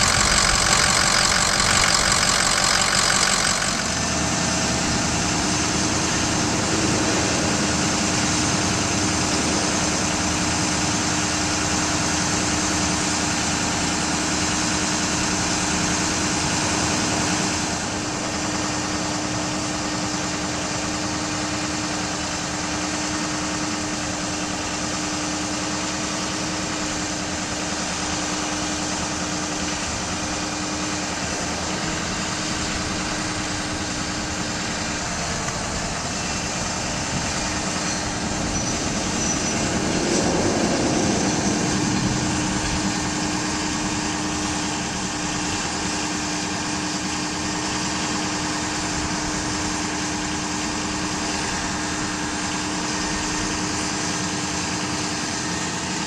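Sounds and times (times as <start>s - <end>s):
truck engine running: 0.0s - 56.0s.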